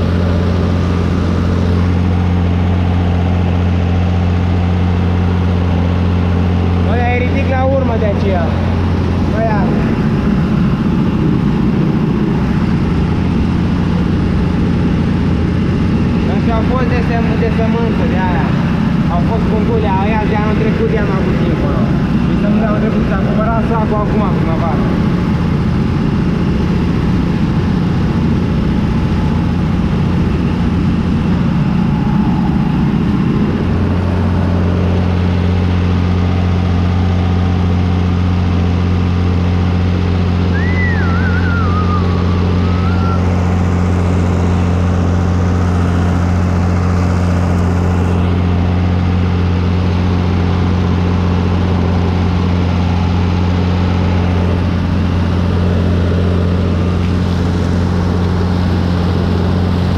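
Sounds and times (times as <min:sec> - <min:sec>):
tractor diesel engine under load: 0:00.0 - 0:59.9
high warbling whistle: 0:40.4 - 0:43.7.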